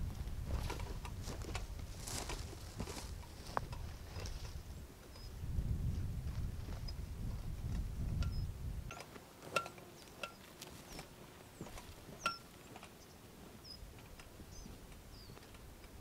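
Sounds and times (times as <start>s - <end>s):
footsteps on stony ground: 0.0s - 4.8s, 6.0s - 8.2s, 9.0s - 16.0s
metallic clink of backpack gear: 11.8s - 13.0s
bird chirps: 14.5s - 15.5s.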